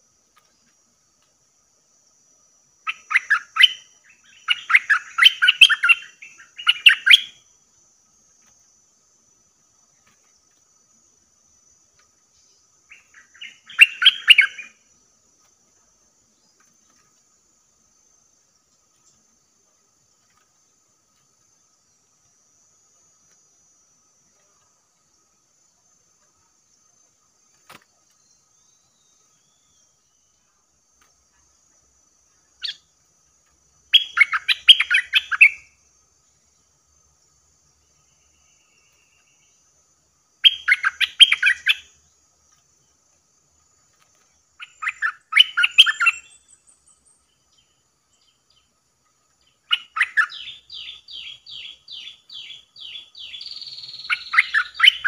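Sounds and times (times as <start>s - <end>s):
faint high whine: 0.0s - 55.0s
bulbul chattering calls: 2.9s - 7.3s, 12.9s - 14.8s, 33.9s - 35.6s, 40.4s - 41.9s, 49.6s - 55.0s.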